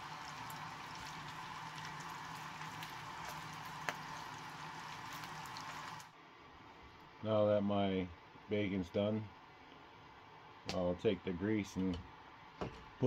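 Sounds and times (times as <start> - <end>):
bacon sizzling in a frying pan: 0.0 - 6.1.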